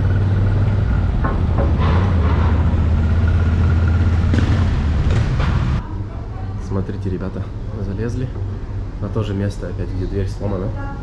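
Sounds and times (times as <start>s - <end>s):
low engine drone: 0.0s - 10.8s
short clanks and knocks: 1.2s - 5.8s.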